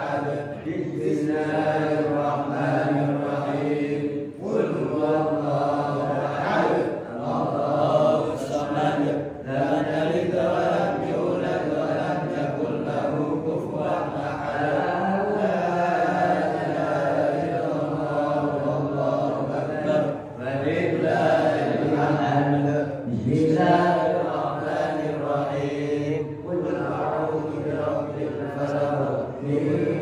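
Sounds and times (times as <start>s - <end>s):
man chanting recitation: 0.0s - 30.0s.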